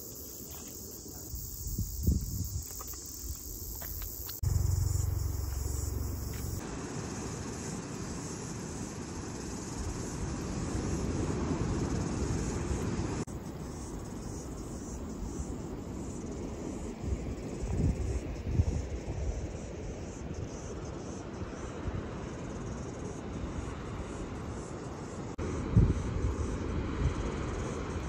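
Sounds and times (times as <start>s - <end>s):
insects chirping: 0.0s - 28.0s
wind buffeting microphone: 1.3s - 3.7s.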